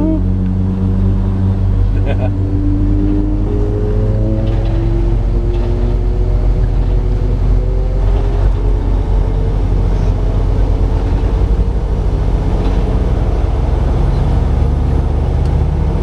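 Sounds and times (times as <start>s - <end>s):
road noise: 0.0s - 16.0s
truck engine drone: 0.0s - 16.0s.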